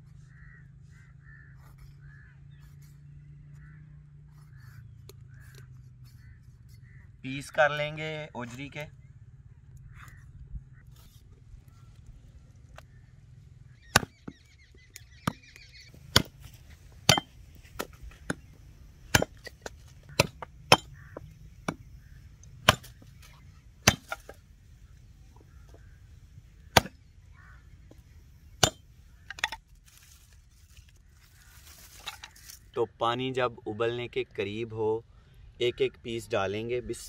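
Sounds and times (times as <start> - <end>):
hatchet chopping sticks: 16.0 - 24.4, 26.7 - 27.0, 28.6 - 29.6.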